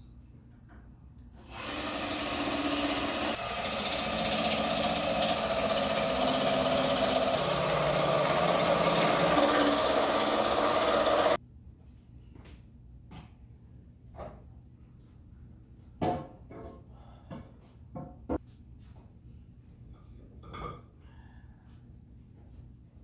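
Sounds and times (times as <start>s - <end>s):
cordless drill whirring: 1.4s - 11.4s.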